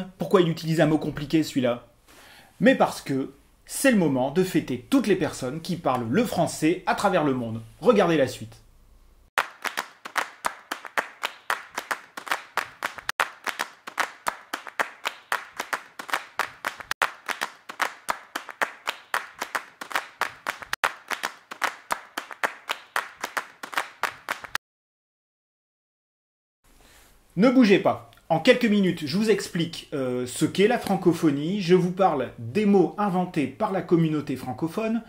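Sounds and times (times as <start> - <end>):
rhythmic hand claps: 9.4 - 24.6.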